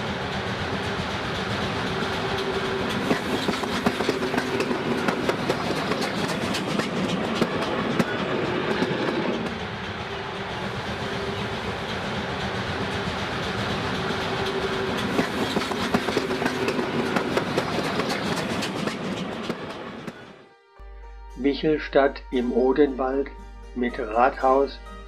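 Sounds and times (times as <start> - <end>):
steam locomotive passing: 0.0 - 20.4
wheels clicking over rail joints: 0.4 - 10.2, 11.0 - 20.2.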